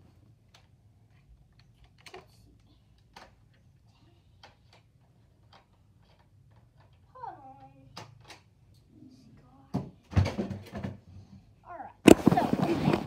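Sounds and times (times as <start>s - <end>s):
low room hum: 0.0s - 13.0s
faint clicks and taps: 0.4s - 8.9s.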